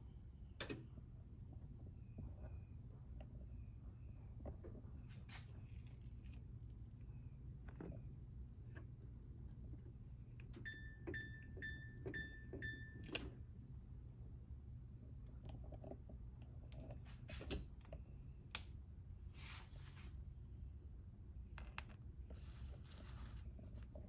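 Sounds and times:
faint low hum: 0.0s - 24.0s
short electronic beeps: 10.7s - 13.0s.

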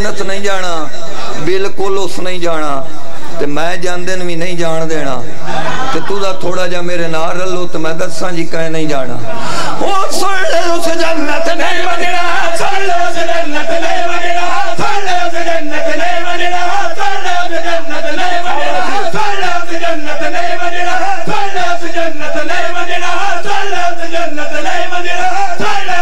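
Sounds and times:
men chanting in unison: 9.2s - 26.0s.

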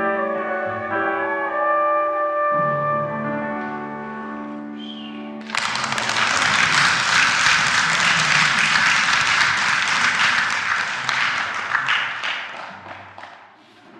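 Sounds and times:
audience applause: 5.4s - 13.4s.

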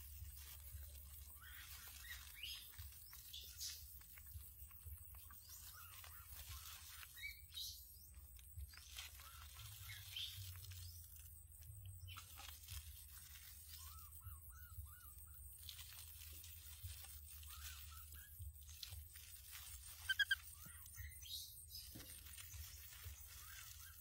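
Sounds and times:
high animal chirps: 17.3s - 22.0s.

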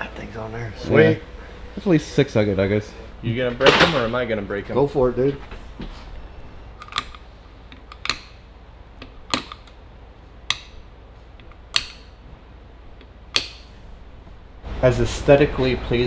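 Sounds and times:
sharp plastic clicks: 11.4s - 12.1s, 13.0s - 13.7s.

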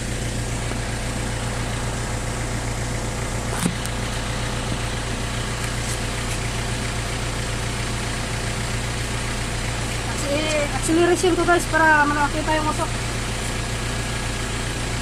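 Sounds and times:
diesel truck engine idling: 0.0s - 15.0s.

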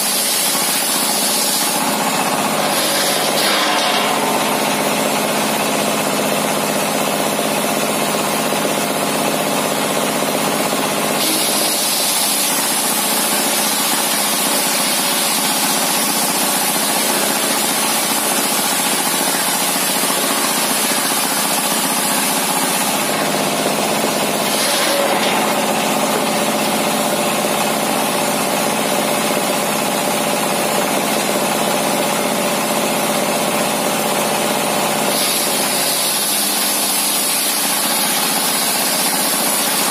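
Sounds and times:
circular saw ripping timber: 0.0s - 5.5s, 11.2s - 26.5s, 35.1s - 39.9s
diesel engine running: 0.0s - 32.4s.

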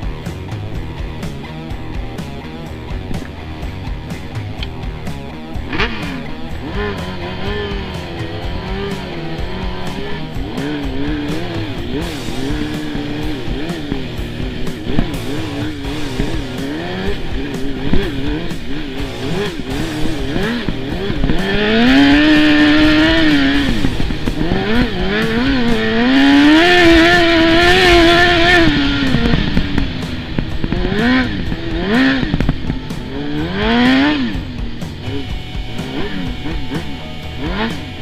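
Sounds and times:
atv engine revving: 0.0s - 38.0s.

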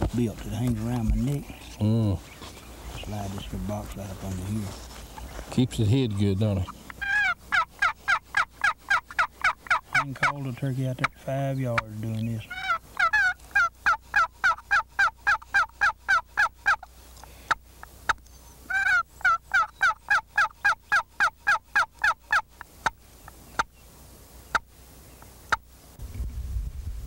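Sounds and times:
turkey call clucks: 6.0s - 23.8s, 24.5s - 25.7s
turkey call hen yelps: 6.6s - 10.4s, 12.5s - 16.9s, 18.7s - 23.0s.

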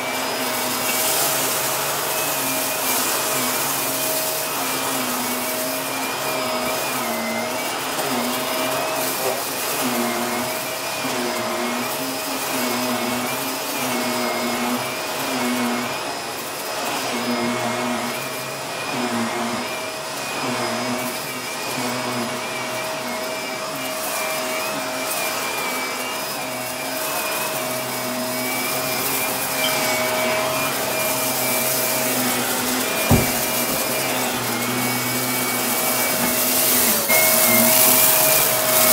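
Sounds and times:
vacuum cleaner on carpet: 0.0s - 38.9s
sharp knock: 33.1s - 33.4s.

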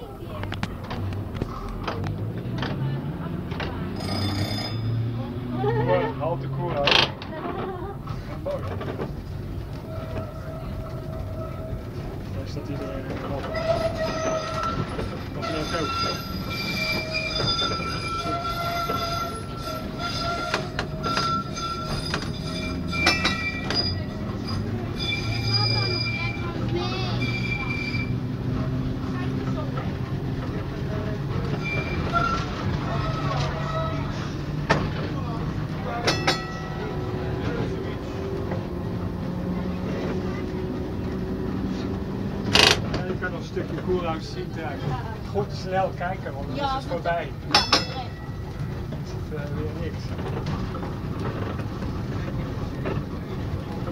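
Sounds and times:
tram wheels squealing on rails: 3.5s - 6.1s, 6.9s - 53.9s
sharp metallic clangs: 47.5s - 48.3s.

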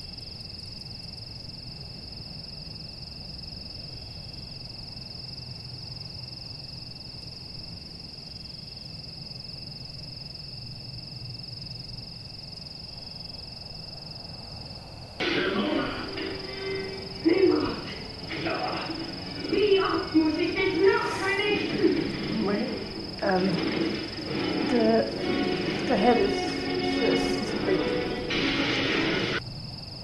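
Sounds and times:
low background hum: 14.4s - 29.4s
fainter constant tone: 14.9s - 29.4s
steady high-pitched tone: 15.2s - 29.4s.

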